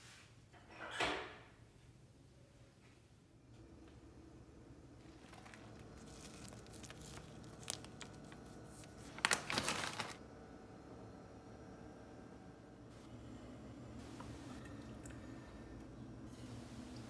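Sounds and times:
plastic wrapper crinkling: 0:05.0 - 0:10.2.

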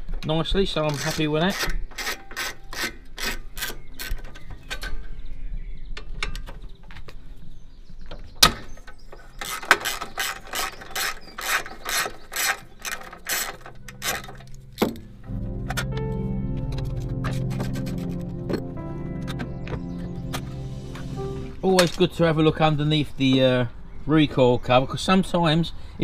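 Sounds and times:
socket ratchet clicking: 0:08.9 - 0:15.1.

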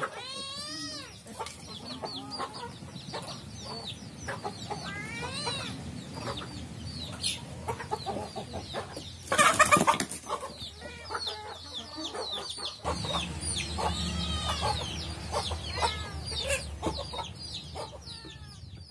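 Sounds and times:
chickens clucking: 0:00.0 - 0:18.9
chicks peeping: 0:00.0 - 0:18.9
harsh chicken squawk: 0:12.8 - 0:18.8.

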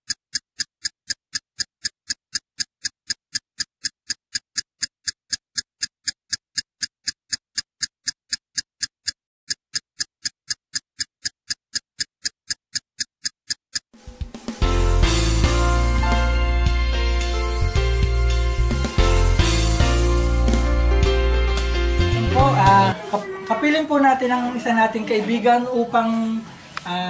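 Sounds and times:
sharp even ticking: 0:00.0 - 0:14.0.

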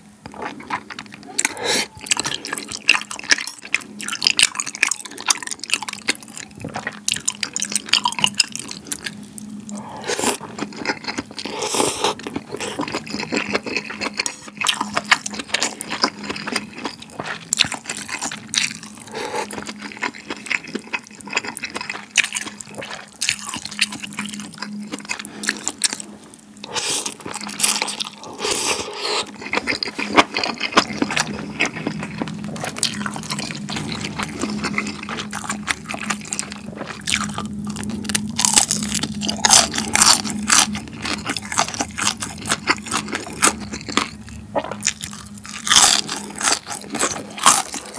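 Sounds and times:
slurping noodles: 0:09.7 - 0:14.8, 0:26.6 - 0:38.0.

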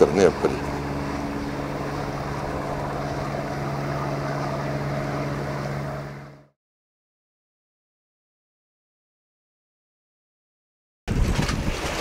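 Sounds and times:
boat engine humming: 0:00.0 - 0:06.6
wind noise: 0:11.1 - 0:12.0.

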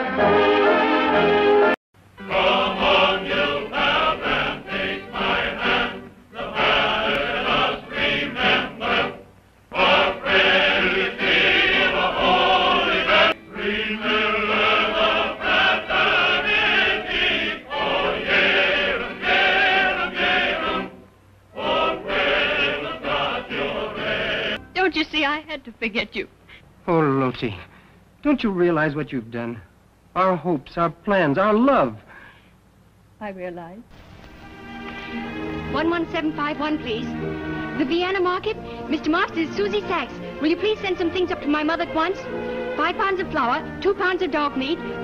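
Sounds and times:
choir singing: 0:02.2 - 0:24.7, 0:34.5 - 0:45.0.

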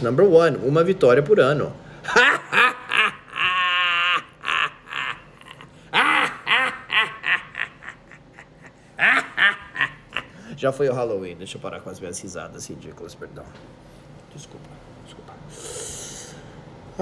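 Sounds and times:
man laughing mockingly: 0:02.0 - 0:10.6.

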